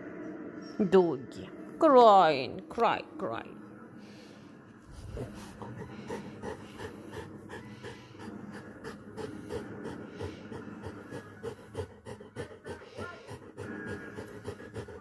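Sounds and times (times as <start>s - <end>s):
dog panting: 4.8s - 15.0s.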